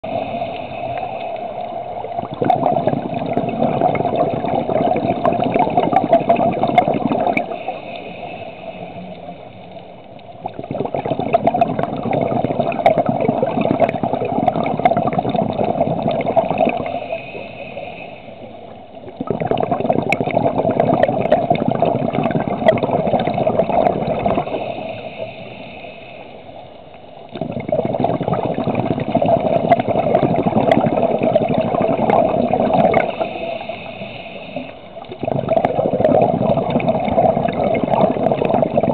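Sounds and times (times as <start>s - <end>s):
regulator hissing on inhale: 0.0s - 2.2s, 7.2s - 10.3s, 16.6s - 19.0s, 24.1s - 27.0s, 32.3s - 35.1s
exhaled bubbles rushing underwater: 0.0s - 25.3s, 27.1s - 38.9s.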